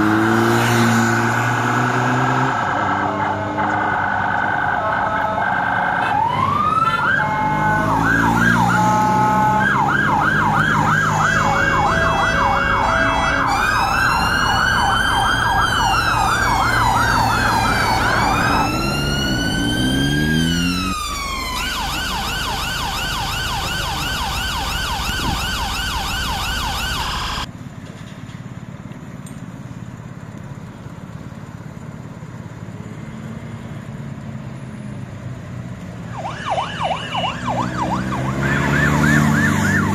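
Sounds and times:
siren wail rising and falling: 0.0 - 27.5, 36.1 - 39.9
low traffic rumble: 0.0 - 39.9
siren fast warble: 1.0 - 27.5, 36.1 - 39.9
siren yelp: 1.0 - 27.5, 36.1 - 39.9.

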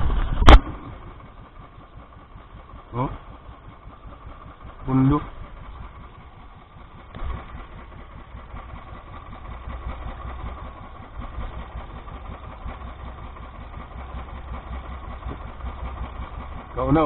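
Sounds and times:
small boat engine idling: 0.0 - 17.0.

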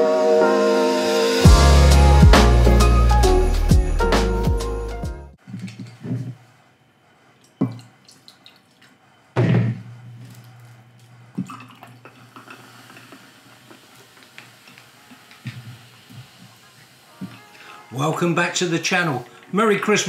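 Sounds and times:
drink pouring over ice: 11.4 - 20.0.

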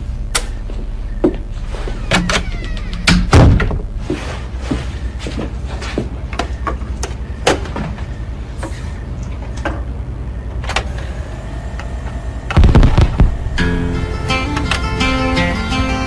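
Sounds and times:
turntable hum: 0.0 - 7.4, 8.0 - 16.0
stylus dropping thump: 12.5 - 13.6
song playing: 12.7 - 16.0.

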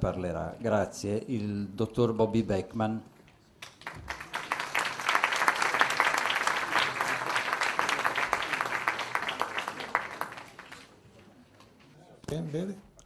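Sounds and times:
audience applauding: 3.6 - 11.1.

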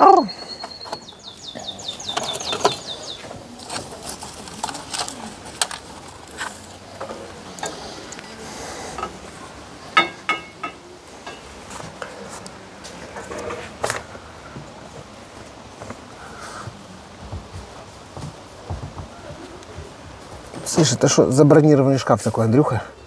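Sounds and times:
bird chirping: 0.0 - 3.6.

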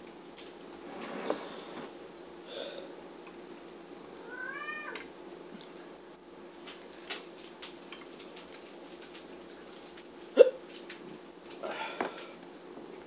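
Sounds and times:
cat meowing: 4.2 - 5.0.

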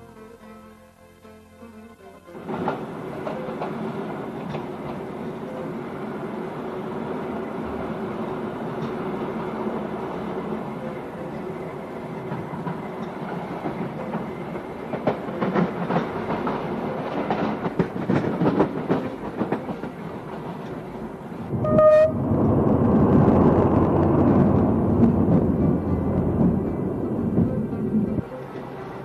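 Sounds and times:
train running on rails: 2.1 - 29.0
wheels clicking over rail joints: 2.4 - 29.0
heavy rumble: 17.6 - 28.3
short train horn toot: 21.5 - 22.4.

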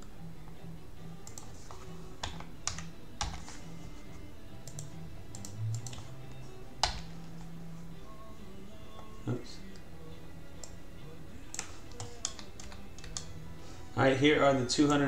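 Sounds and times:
keyboard keystrokes: 2.2 - 3.5, 6.8 - 7.1, 11.5 - 13.3
mouse clicks: 4.6 - 6.1, 11.5 - 13.3.

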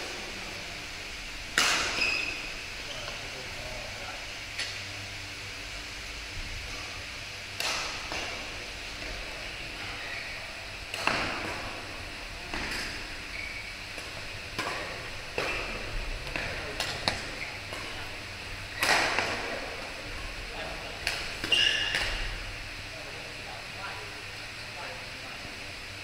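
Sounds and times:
racket hitting shuttlecock: 1.5 - 2.3, 7.6 - 9.2, 10.8 - 11.8, 13.9 - 18.0, 18.7 - 19.6, 21.0 - 22.4
sneakers squeaking on court: 1.9 - 2.5, 21.5 - 22.2.

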